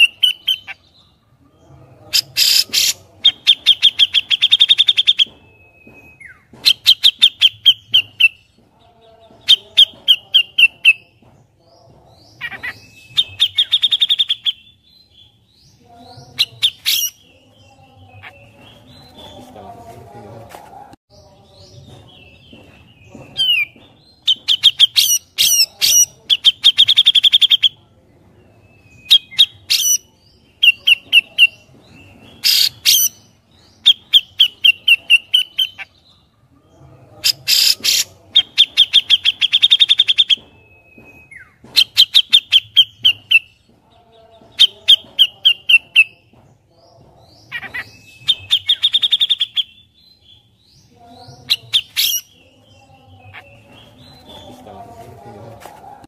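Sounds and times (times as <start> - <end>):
bird singing chattering trills: 0.0 - 19.7, 21.1 - 27.9, 37.2 - 54.9.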